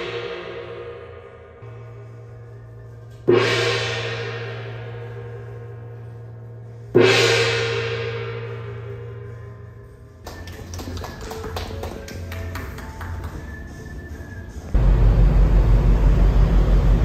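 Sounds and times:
steady low hum: 14.6s - 17.0s.

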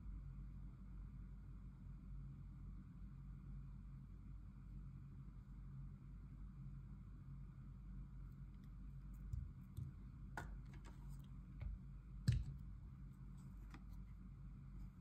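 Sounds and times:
metal clicks and taps on stone: 11.6s - 12.7s.

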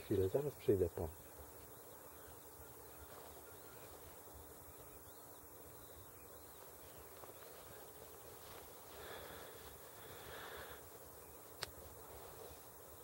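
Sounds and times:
distant bird calls: 0.0s - 13.0s
faint outdoor hiss: 0.0s - 13.0s.

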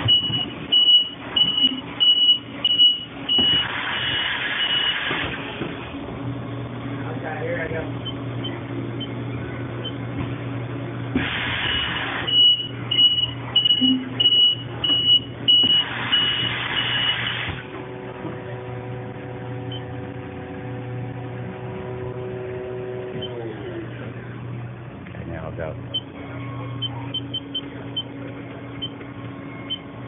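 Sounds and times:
high electronic beeps: 0.0s - 3.6s, 12.3s - 17.1s, 26.8s - 28.1s, 29.6s - 29.9s
machine whine: 0.0s - 30.0s
low hum: 17.7s - 30.0s.

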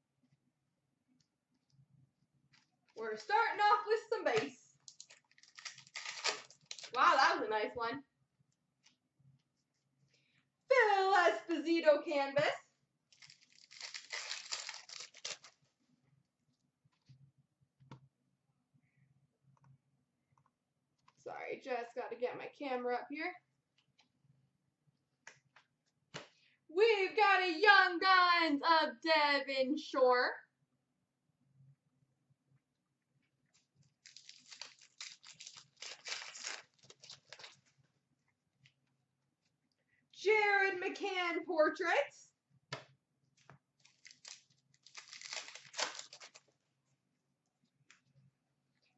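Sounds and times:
card pack crinkling and rustling: 4.2s - 7.3s, 13.1s - 15.6s, 34.0s - 37.7s, 43.8s - 46.5s
foil wrapper tearing: 4.8s - 7.1s, 13.1s - 15.6s, 34.0s - 37.6s, 43.8s - 46.5s.

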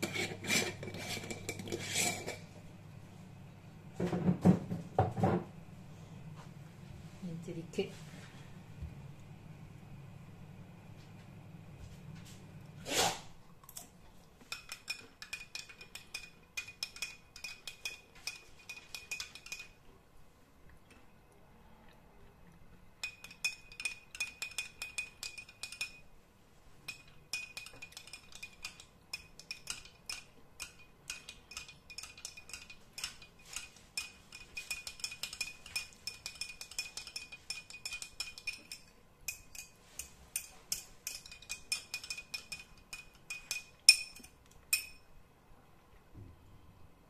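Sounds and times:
spoon clinking in glass: 14.5s - 19.8s, 23.0s - 26.0s, 26.9s - 45.1s.

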